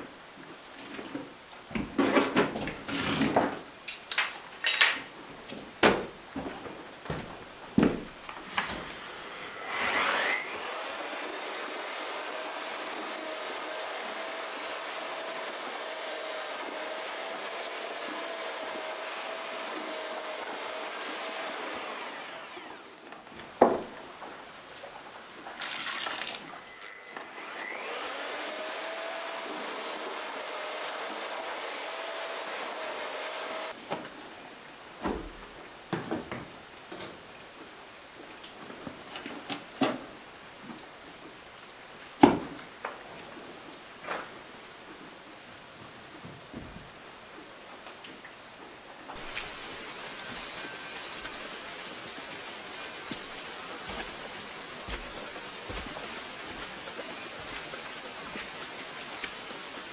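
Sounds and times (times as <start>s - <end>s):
electric paddle mixer motor: 8.9s - 23.1s, 26.9s - 33.7s.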